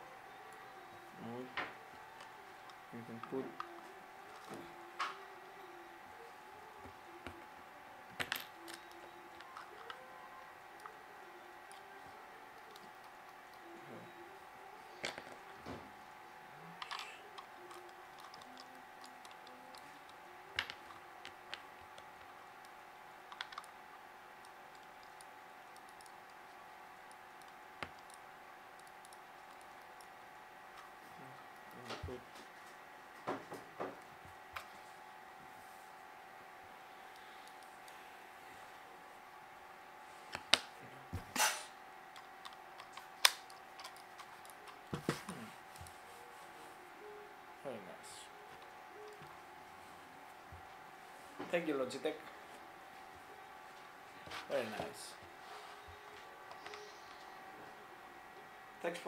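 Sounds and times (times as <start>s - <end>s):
faint hum: 0.0s - 59.0s
plastic mouse parts clicking: 23.3s - 23.8s.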